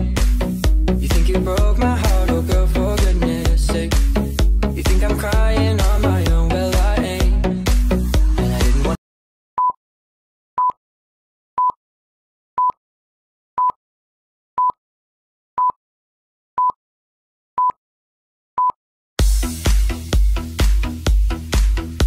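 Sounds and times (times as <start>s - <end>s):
dance music: 0.0s - 9.0s, 19.2s - 22.0s.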